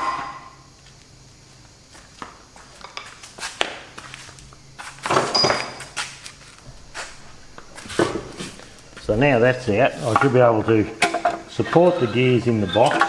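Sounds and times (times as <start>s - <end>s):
metal tools clinking: 5.2s - 5.8s.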